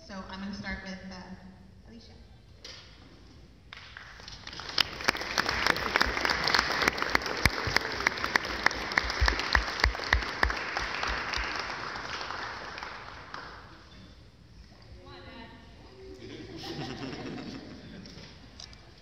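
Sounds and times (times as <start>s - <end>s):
sharp single claps: 3.7s - 5.5s
audience applause: 3.8s - 13.8s.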